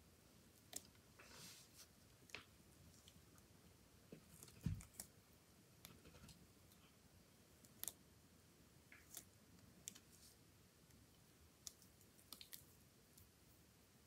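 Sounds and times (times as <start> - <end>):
faint clicks and crackles of chewing: 7.6 - 8.0, 11.6 - 13.3.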